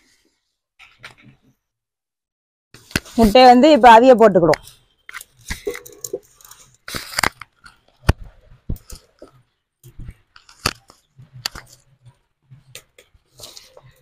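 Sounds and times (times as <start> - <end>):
clay pot scraping: 5.4 - 7.8.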